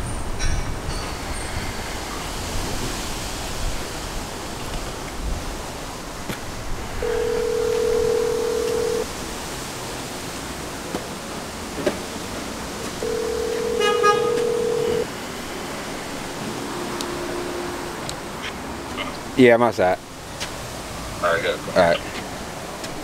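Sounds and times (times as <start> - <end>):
telephone ringback tone: 7.0 - 9.1, 13.0 - 15.1.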